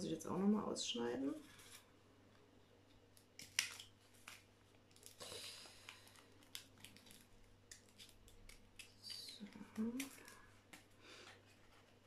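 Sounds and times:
paper crinkling: 2.8s - 12.0s
scissors snipping paper: 6.4s - 10.9s.

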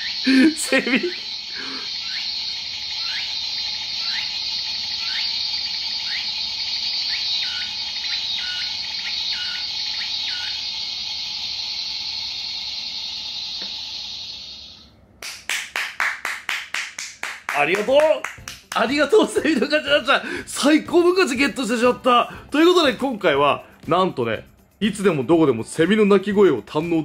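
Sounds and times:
cicada buzzing drone: 0.0s - 14.9s
hand clapping: 15.2s - 19.1s.

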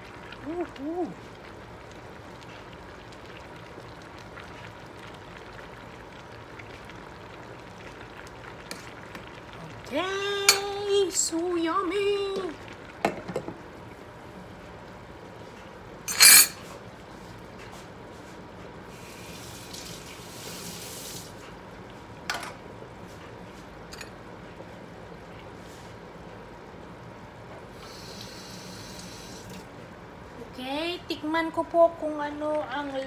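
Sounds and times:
stew bubbling in saucepan: 0.0s - 33.0s
glass lid clattering: 16.1s - 16.6s.

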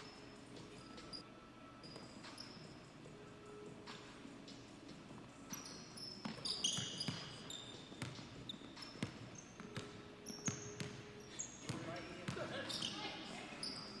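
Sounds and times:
sneaker squeaks: 0.0s - 1.2s, 1.8s - 2.8s, 5.4s - 14.0s
basketball bouncing: 6.2s - 11.0s.

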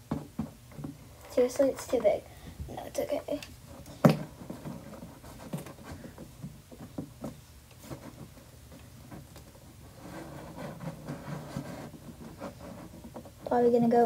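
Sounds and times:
soft rubbing and scraping: 2.8s - 14.0s.

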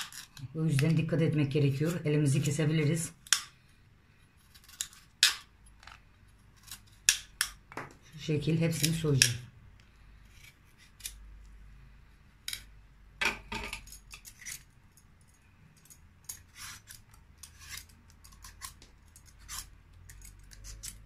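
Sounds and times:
knife scraping squash rind: 0.0s - 1.1s, 4.4s - 5.4s, 6.6s - 7.2s, 8.6s - 9.3s, 10.2s - 11.2s, 14.2s - 14.7s, 16.3s - 21.0s.

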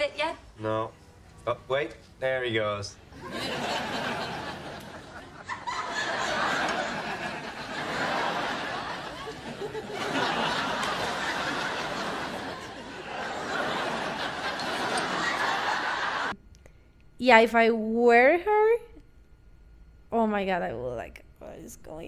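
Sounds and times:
studio audience laughing: 3.1s - 16.4s.

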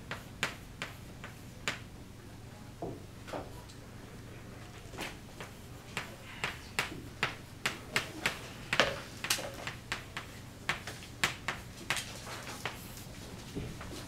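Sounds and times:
chalk clicking on a blackboard: 0.0s - 1.9s, 5.3s - 13.1s.

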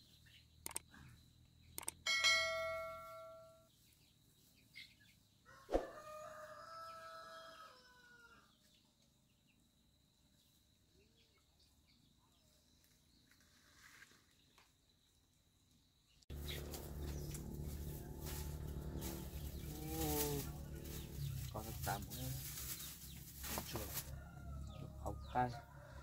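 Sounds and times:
rooster crowing: 5.4s - 8.5s, 24.0s - 26.0s.

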